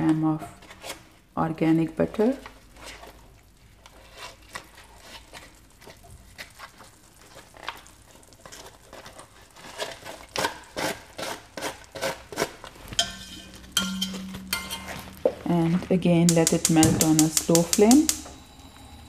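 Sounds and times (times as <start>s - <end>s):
butter wrapper crinkling: 2.4s - 13.0s
metal utensil scraping: 12.4s - 18.3s.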